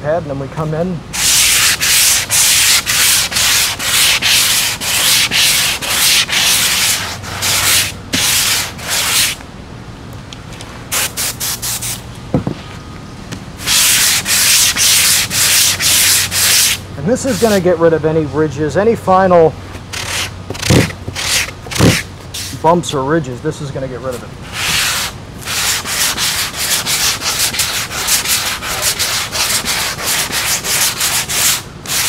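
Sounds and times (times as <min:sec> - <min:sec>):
sanding pad rasping on spackle: 0:01.2 - 0:09.4, 0:13.6 - 0:17.6, 0:19.9 - 0:22.6, 0:24.5 - 0:32.0.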